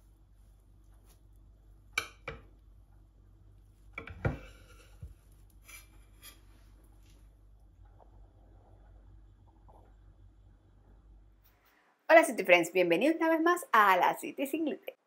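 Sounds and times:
knife sawing through cake: 4.4 - 6.5.

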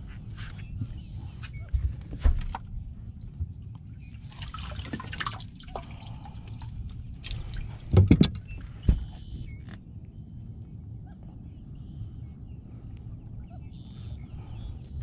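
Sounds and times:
water splashing and dripping: 3.6 - 8.2.

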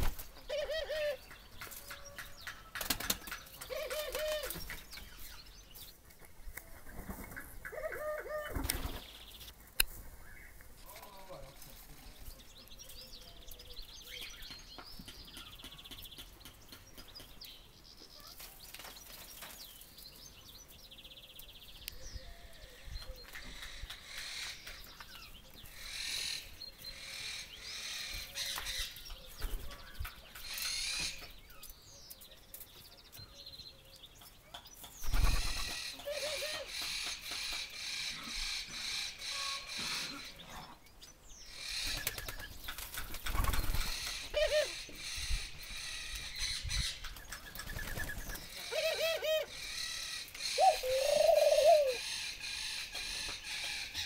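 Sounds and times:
doves cooing: 0.0 - 1.3, 2.0 - 4.8, 7.2 - 9.1, 35.2 - 40.8, 43.3 - 46.2, 47.6 - 54.0
birds chirping and calling: 0.0 - 54.0.

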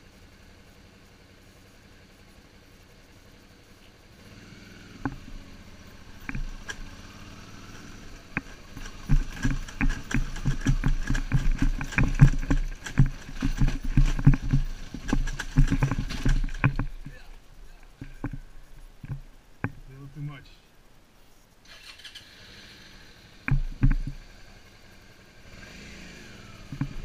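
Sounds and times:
motorcycle jolting over rocks: 5.0 - 17.4, 23.5 - 24.2, 26.6 - 27.0.

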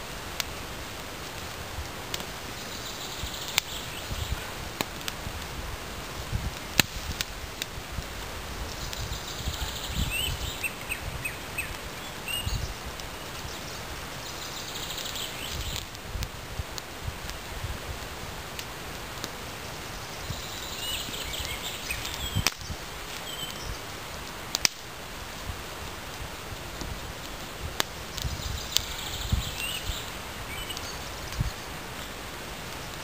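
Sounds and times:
steady background hiss: 0.0 - 33.0
birds chirping: 2.4 - 4.4, 8.6 - 15.9, 19.5 - 24.1, 26.9 - 33.0
sticks snapping and clicking: 24.5 - 24.8.

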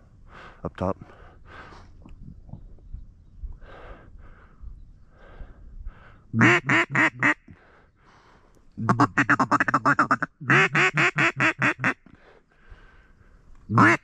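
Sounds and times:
duck call quacks: 6.4 - 7.4, 8.8 - 12.0, 13.7 - 14.0.

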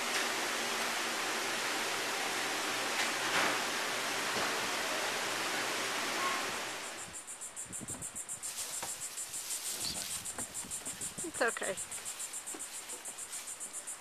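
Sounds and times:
rushing hiss: 0.0 - 14.0
insects chirring: 5.7 - 14.0.

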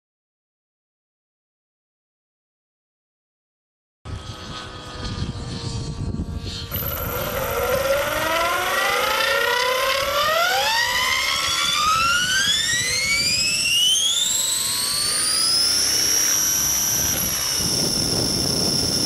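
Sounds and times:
motor and gear whine: 4.1 - 19.0.

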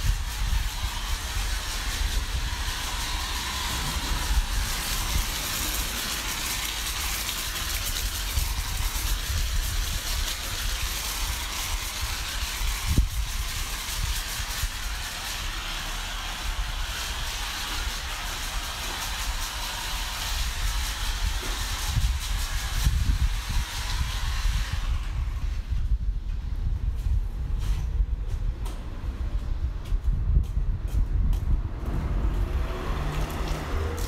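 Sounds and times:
cleaning equipment hissing: 0.0 - 25.7.

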